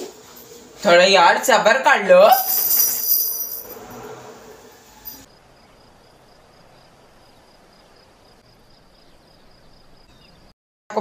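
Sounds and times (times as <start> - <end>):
cricket chirping: 5.0 - 10.5.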